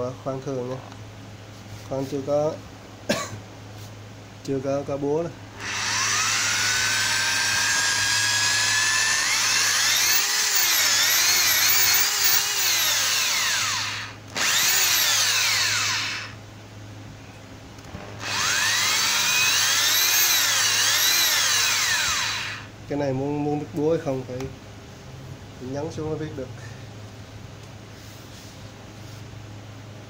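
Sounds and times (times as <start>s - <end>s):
drill motor whine: 5.6s - 16.4s, 17.9s - 22.7s.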